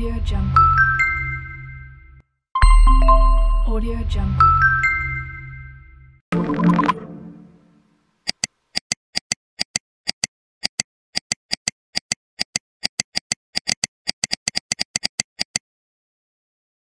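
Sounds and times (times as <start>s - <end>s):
computer mouse clicking: 8.2s - 15.6s.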